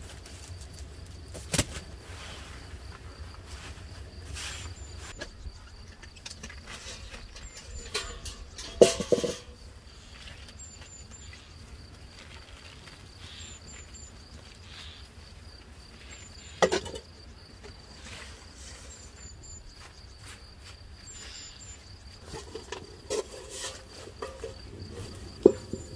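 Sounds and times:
insects chirring: 0:00.0 - 0:25.9
metal bucket clanking: 0:05.2 - 0:09.8, 0:16.6 - 0:17.8, 0:22.2 - 0:25.9.

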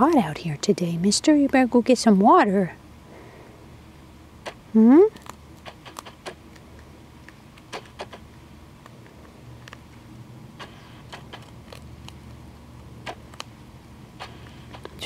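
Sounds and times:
rabbit gnawing crunches: 0:04.3 - 0:15.0.

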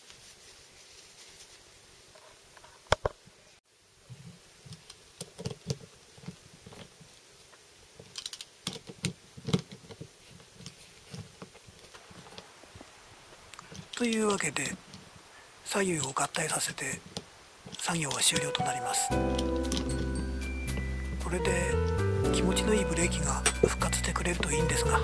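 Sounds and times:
hand driver clicking on metal parts: 0:08.1 - 0:09.8, 0:19.2 - 0:21.3, 0:23.1 - 0:24.8.

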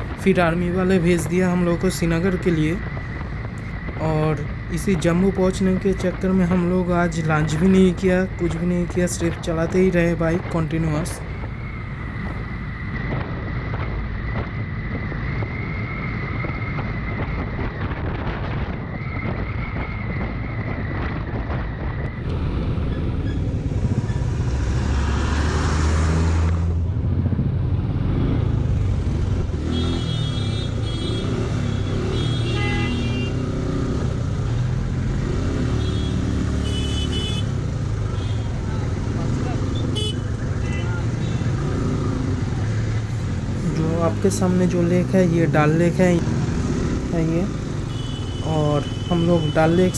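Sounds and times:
wind noise: 0:00.0 - 0:29.8
heavy traffic noise: 0:00.0 - 0:49.9
motorcycle engine riding: 0:11.3 - 0:49.9.

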